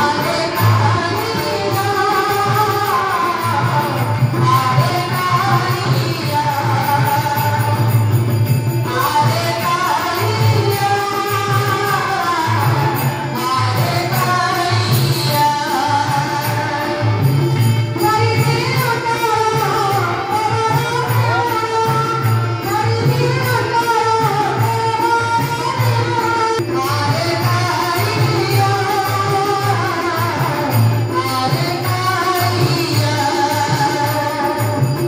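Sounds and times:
person singing: 8.8 - 35.0.

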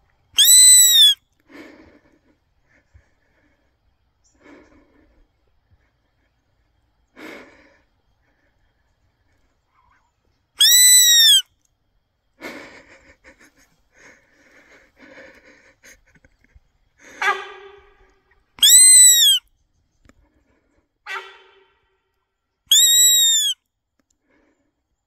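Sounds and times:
loud high rising and falling call: 0.4 - 1.2, 10.6 - 11.4, 18.6 - 19.4, 22.7 - 23.6.

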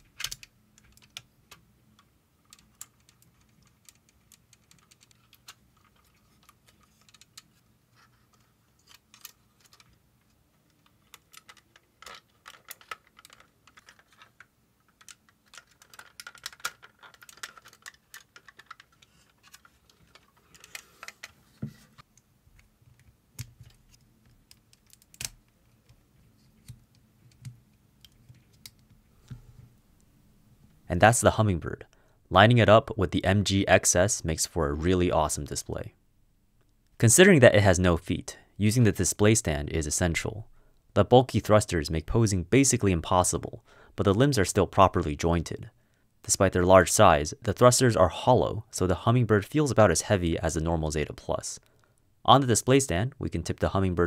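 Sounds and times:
plastic toy parts clicking: 0.0 - 7.6, 8.3 - 21.4, 22.6 - 26.0.

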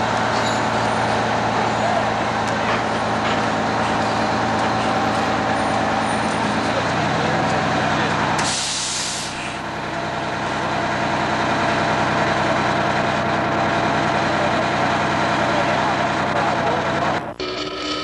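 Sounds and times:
fire engine running: 0.0 - 18.0
hiss of air: 8.4 - 9.6.

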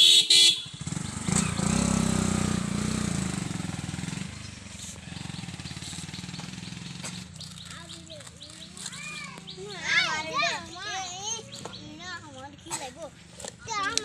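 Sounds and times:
motorcycle horn beep: 0.0 - 1.0
motorcycle engine passing: 0.4 - 13.8.

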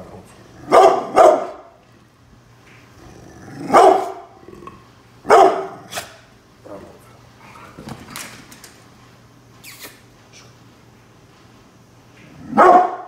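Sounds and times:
dog barking: 0.6 - 1.7, 3.7 - 4.3, 5.2 - 6.1, 12.5 - 13.0.

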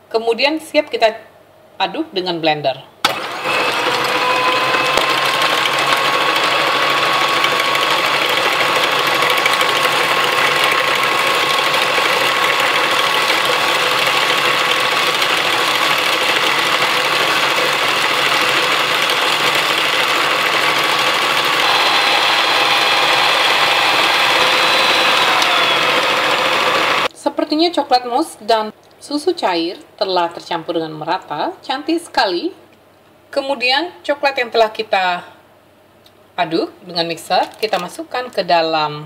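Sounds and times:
stand mixer motor whine: 3.1 - 27.1.

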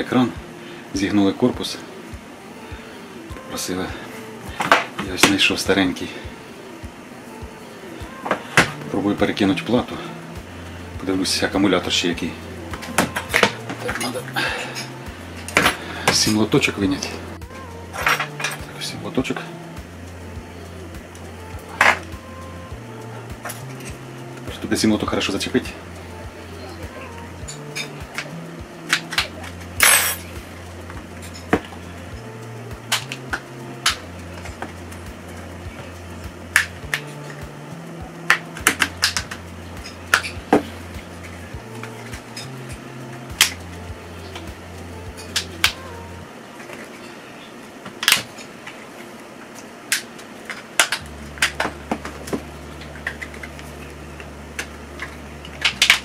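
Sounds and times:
low steady hum: 0.0 - 56.0.

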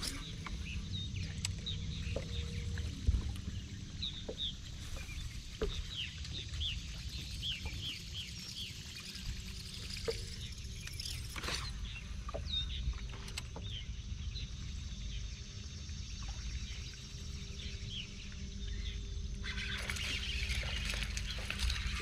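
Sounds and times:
waves lapping against boat hull: 0.0 - 14.0, 19.5 - 22.0
wind rumble on microphone: 0.0 - 14.5
faint steady hum: 0.0 - 22.0.

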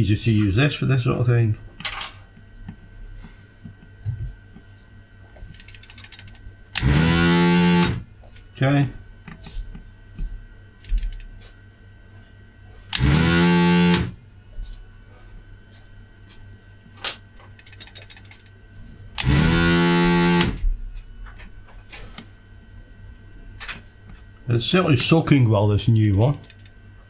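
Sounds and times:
vacuum pump buzzing: 6.6 - 11.6, 12.7 - 15.8, 18.6 - 27.0.

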